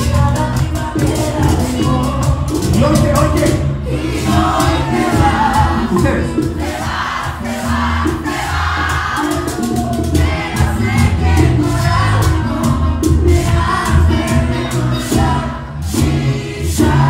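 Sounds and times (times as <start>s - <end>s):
man singing: 0.0s - 6.6s
live band playing: 0.0s - 17.0s.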